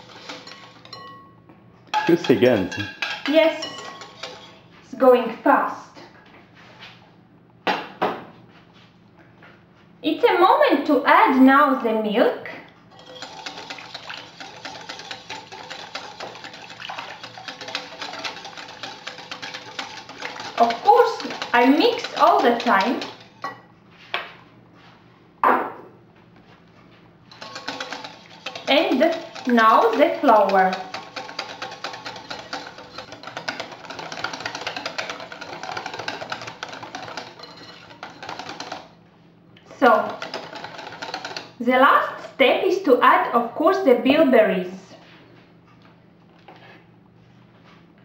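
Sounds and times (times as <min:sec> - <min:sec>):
utensil beating batter in bowl: 0:00.0 - 0:01.1, 0:01.9 - 0:04.6, 0:12.9 - 0:23.6, 0:27.3 - 0:39.0, 0:39.6 - 0:41.7.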